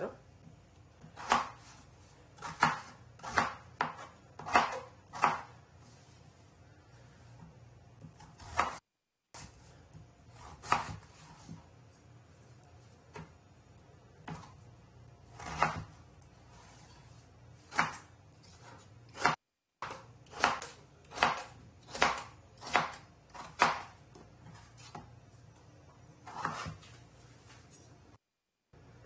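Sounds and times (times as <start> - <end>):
knife cutting potatoes on a board: 0.4 - 6.0, 7.2 - 8.8, 9.4 - 12.2, 14.2 - 25.2, 25.9 - 28.0.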